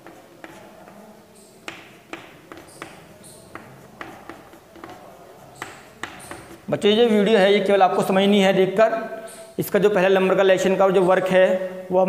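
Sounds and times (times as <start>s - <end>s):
chalk scratching: 0.0s - 6.7s
chalk tapping on chalkboard: 0.0s - 6.7s.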